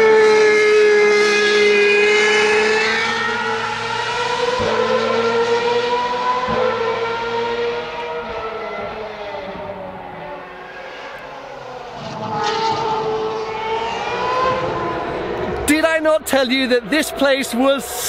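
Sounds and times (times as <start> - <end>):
racing car engine screaming: 0.6 - 11.1.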